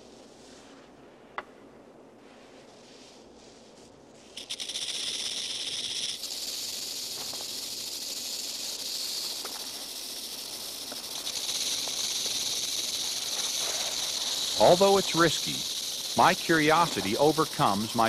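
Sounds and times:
rattlesnake rattling: 0:04.1 - 0:18.0.

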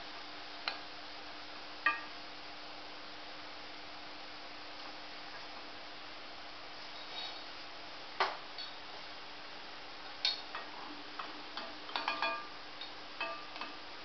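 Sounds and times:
faint steady hiss: 0:00.0 - 0:14.0
spoon clinking against pot: 0:11.6 - 0:13.8.

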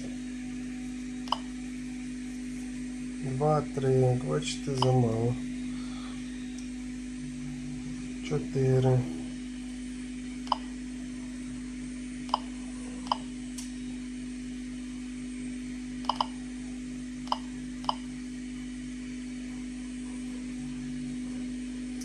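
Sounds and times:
geiger counter click-beeps: 0:01.3 - 0:01.5, 0:04.8 - 0:05.0, 0:10.5 - 0:10.7, 0:12.3 - 0:12.5, 0:16.0 - 0:16.4, 0:17.3 - 0:18.1.

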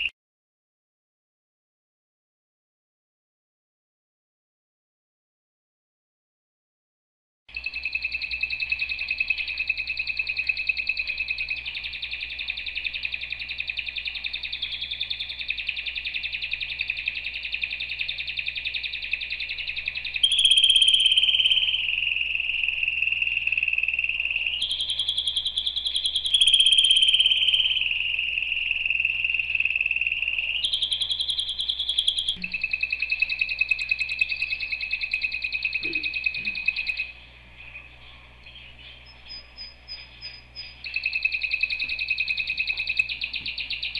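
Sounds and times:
canary singing rapid trills: 0:07.5 - 0:43.9.

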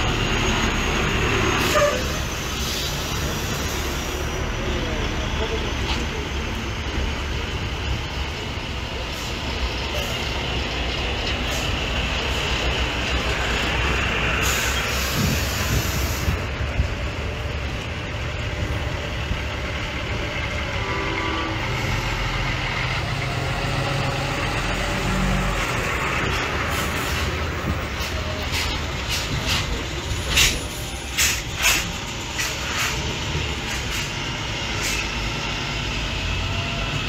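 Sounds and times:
diesel truck engines: 0:00.0 - 0:37.0
air brake hiss: 0:14.4 - 0:16.4, 0:30.3 - 0:33.0, 0:34.8 - 0:35.2.

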